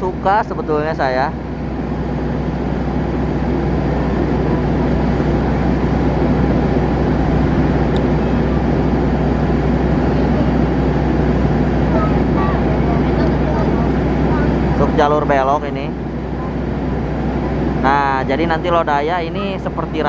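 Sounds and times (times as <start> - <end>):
diesel train engines rumbling: 0.0 - 20.0.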